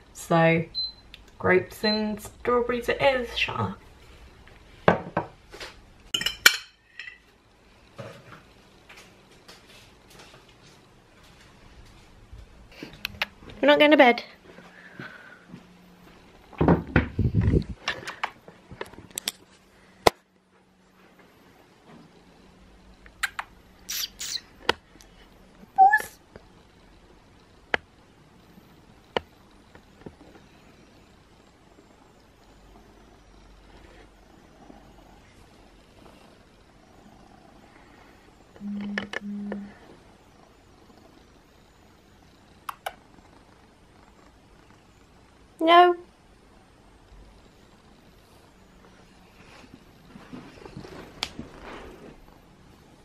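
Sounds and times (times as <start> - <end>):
sharp clicks: 42.6 - 43.0.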